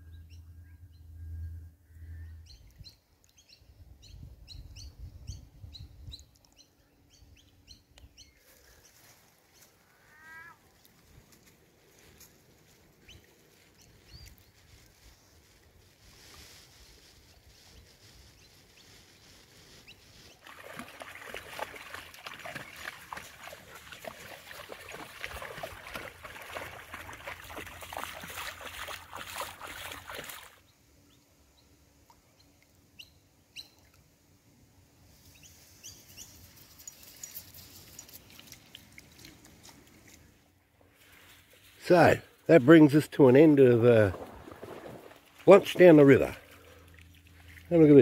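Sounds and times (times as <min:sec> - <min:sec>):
dogs splashing through water: 0:20.3 - 0:30.6, 0:43.9 - 0:48.0.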